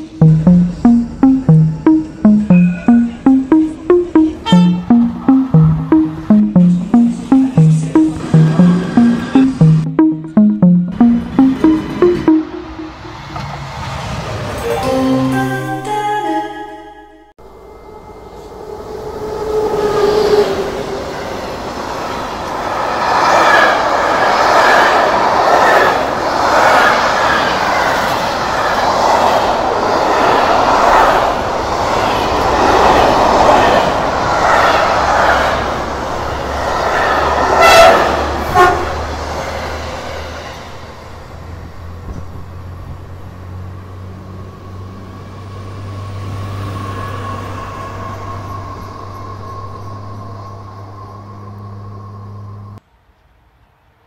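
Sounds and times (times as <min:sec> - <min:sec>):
approaching train hum: 0:17.6 - 0:41.8
freight train passing: 0:17.8 - 0:42.0
train horn: 0:37.6 - 0:39.0.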